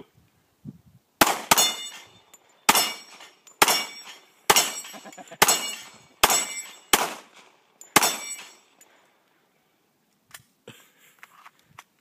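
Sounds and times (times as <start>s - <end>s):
pistol shots: 1.2s - 2.0s, 2.7s - 8.6s
steel plate clanging: 1.4s - 7.0s, 7.8s - 8.8s.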